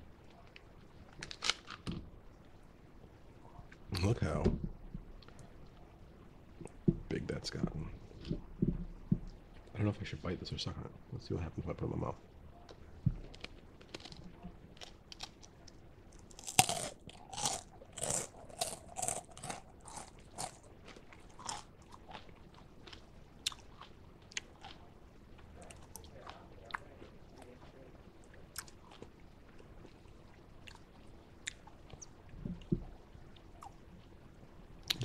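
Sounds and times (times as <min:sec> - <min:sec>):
crunchy candy chewing: 0:13.2 - 0:24.9.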